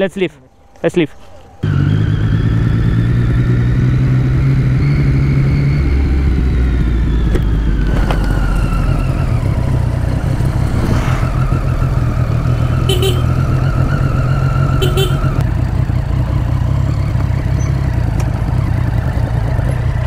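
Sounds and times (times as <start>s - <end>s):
motorcycle engine riding slowly: 0.0s - 20.0s.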